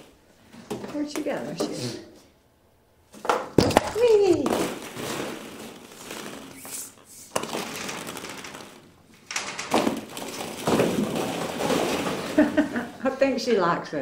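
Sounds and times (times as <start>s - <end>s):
plastic balls clattering: 3.3s - 13.1s
person speaking: 3.7s - 4.7s.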